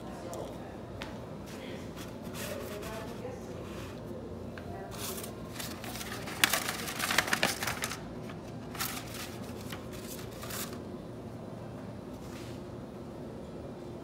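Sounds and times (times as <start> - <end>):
crinkly rustling: 4.9 - 10.8.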